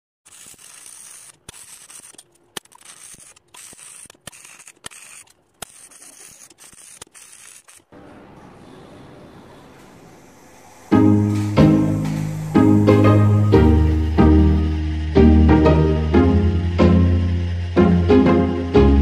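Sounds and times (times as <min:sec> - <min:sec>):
welding arc crackling and hissing: 0:00.2 - 0:08.0, 0:10.3 - 0:17.8
sharp clicks: 0:00.3 - 0:07.9.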